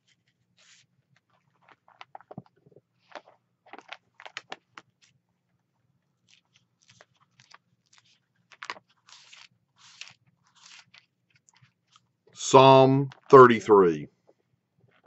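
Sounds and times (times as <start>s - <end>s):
book pages rustling: 0.0s - 5.2s, 6.2s - 12.1s.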